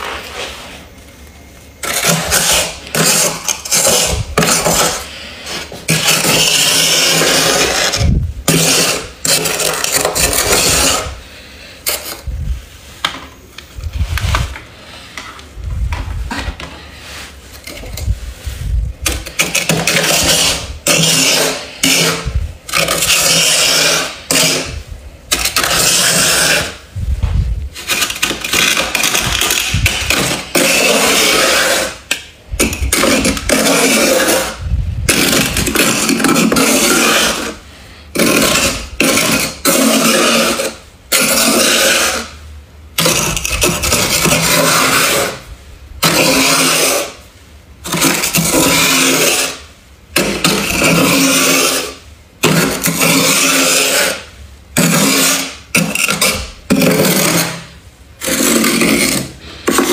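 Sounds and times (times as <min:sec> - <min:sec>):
scraper scraping frost: 0:01.8 - 0:11.3, 0:16.2 - 0:42.4, 0:43.0 - 0:59.9.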